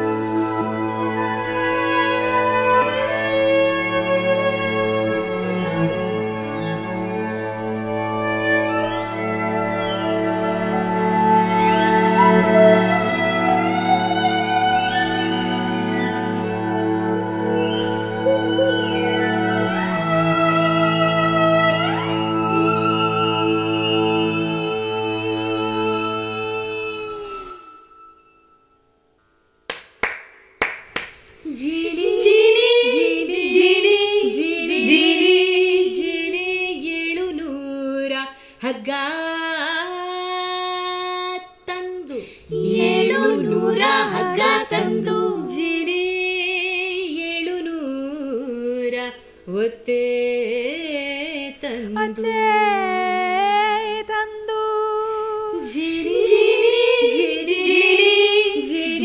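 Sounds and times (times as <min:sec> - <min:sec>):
women singing a cappella: 0:19.6 - 0:27.7, 0:31.5 - 0:59.0.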